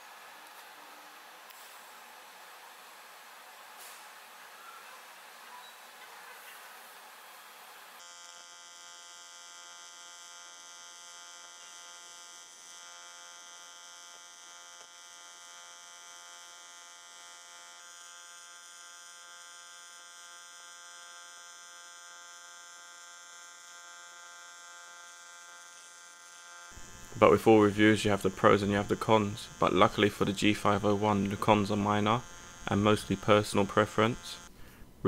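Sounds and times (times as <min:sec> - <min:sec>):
welding arc buzzing: 0:00.0 - 0:06.0, 0:06.6 - 0:34.8.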